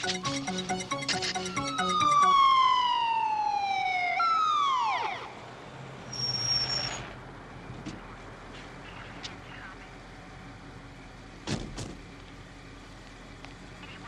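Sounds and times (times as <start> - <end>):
pulsing film score music: 0.0 - 2.8
police sirens winding down: 0.0 - 5.8.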